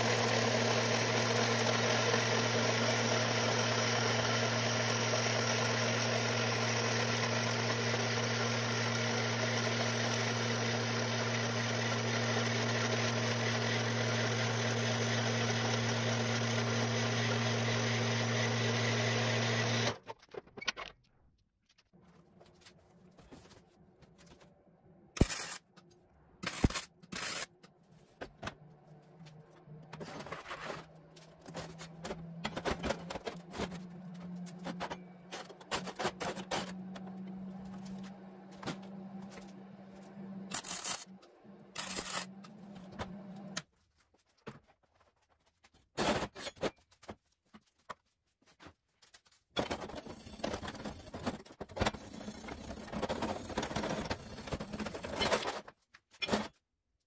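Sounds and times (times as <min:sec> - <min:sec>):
wire brush scrubbing weld: 0:26.4 - 0:27.5, 0:41.8 - 0:42.3.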